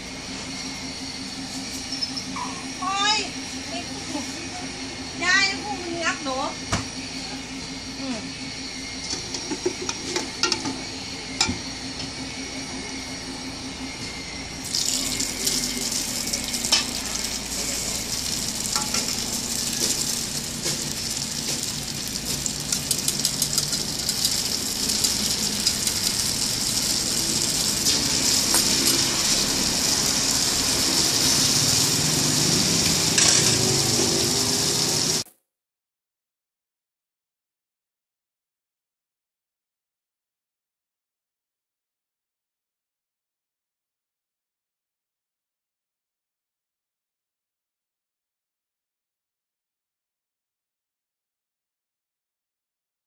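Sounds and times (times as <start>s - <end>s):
hot oil sizzling and crackling: 14.6s - 35.3s.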